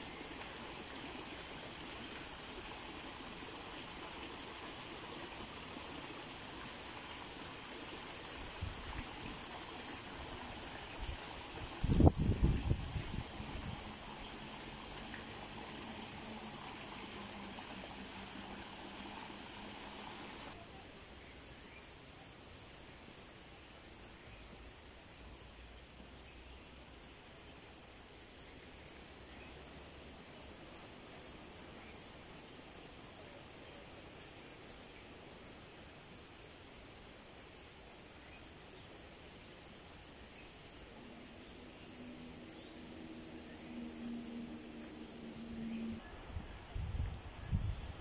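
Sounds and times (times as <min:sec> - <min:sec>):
running water: 0:00.0 - 0:20.6
high-pitched insect chorus: 0:00.0 - 0:46.1.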